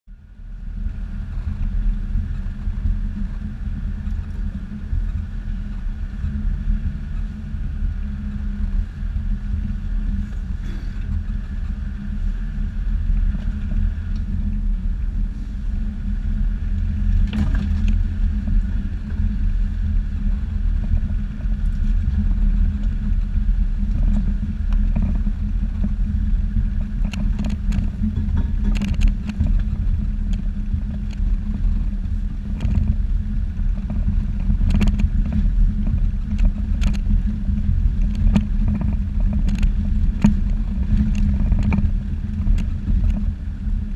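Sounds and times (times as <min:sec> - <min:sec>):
vehicle engine low drone: 0:00.0 - 0:43.9
vehicle knocks and rattles: 0:16.9 - 0:19.3, 0:20.3 - 0:43.4.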